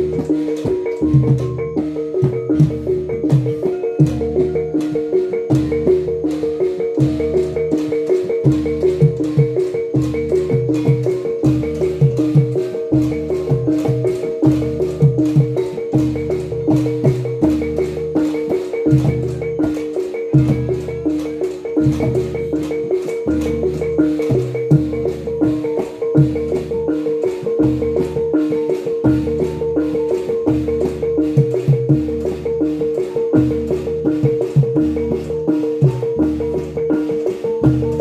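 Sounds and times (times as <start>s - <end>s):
sharp rhythmic strikes: 0.0s - 38.0s.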